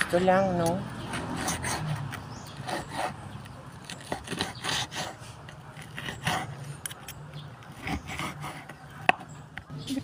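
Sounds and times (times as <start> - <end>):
knife sawing on wooden board: 1.1 - 6.7, 7.7 - 8.9.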